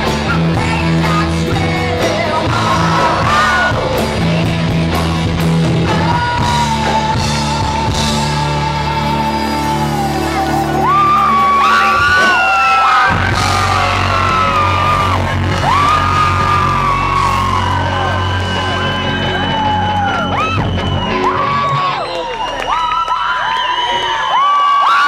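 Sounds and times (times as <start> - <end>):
live rock band playing: 0.0 - 22.6
woman singing: 0.2 - 11.1.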